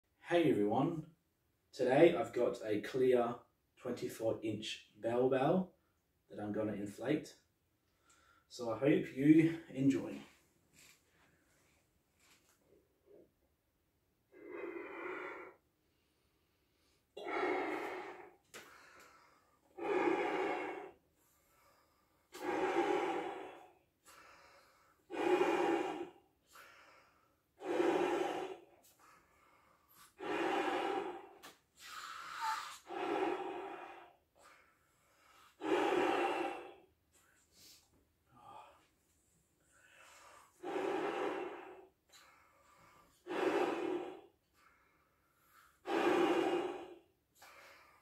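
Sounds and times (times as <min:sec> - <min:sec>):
in-breaths: 0:07.8 - 0:08.6, 0:14.3 - 0:48.0
breaths blown into balloon: 0:14.3 - 0:38.8, 0:39.7 - 0:48.0.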